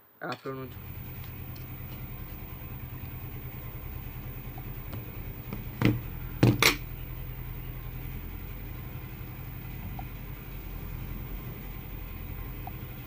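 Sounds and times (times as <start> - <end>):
steady low hum: 0.4 - 13.0
sharp knocks on wooden table: 5.5 - 6.8.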